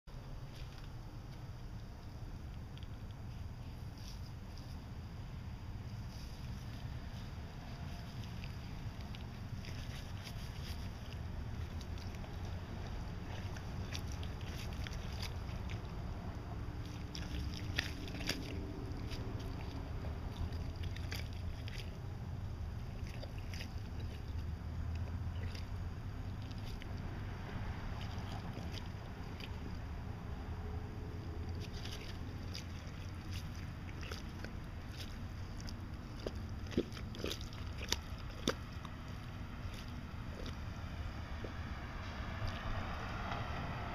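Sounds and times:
low rumble: 0.1s - 43.9s
claws scratching in dirt and leaves: 0.3s - 43.9s
claws scratching soil: 5.9s - 22.1s.

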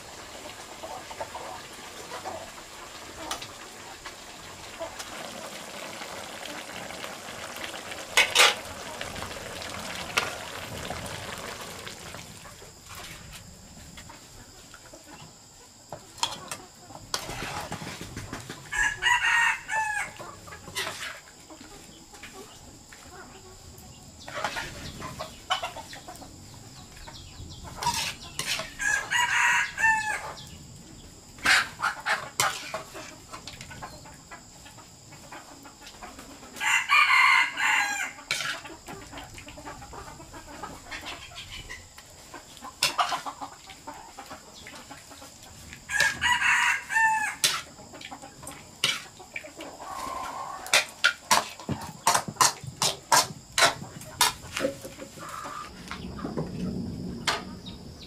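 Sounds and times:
rooster crowing: 18.7s - 20.2s, 28.8s - 30.4s, 36.6s - 38.2s, 45.9s - 47.5s.

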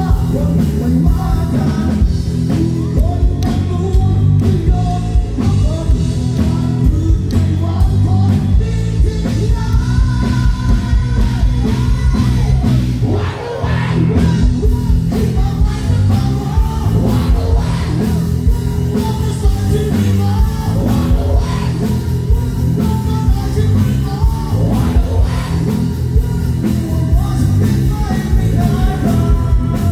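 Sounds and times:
live rock band: 0.0s - 29.9s
man singing: 0.0s - 29.9s.

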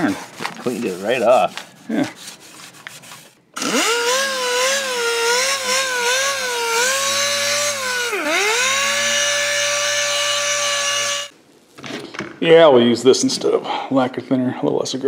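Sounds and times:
pneumatic sander whining: 3.6s - 11.4s.

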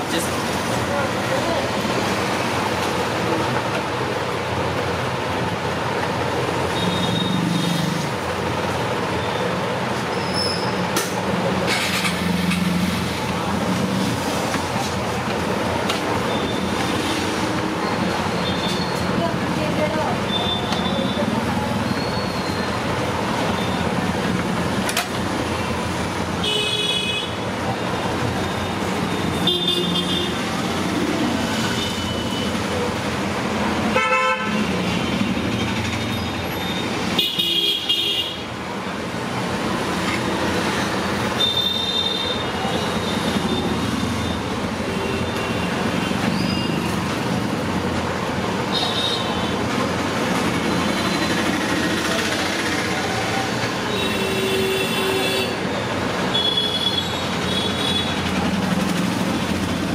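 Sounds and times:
road traffic noise: 0.0s - 59.9s
vehicle horns honking: 26.4s - 27.4s, 29.2s - 30.4s, 33.9s - 35.2s, 37.2s - 38.4s, 56.3s - 58.2s.

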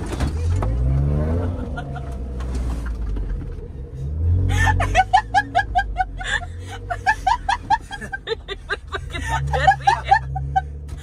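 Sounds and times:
person laughing high-pitched: 4.5s - 10.8s.

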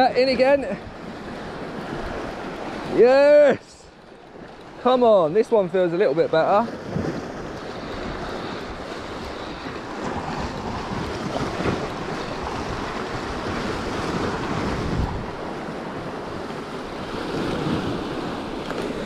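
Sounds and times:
waves washing over rocks: 4.8s - 19.0s
wind buffeting microphone: 6.6s - 19.0s.

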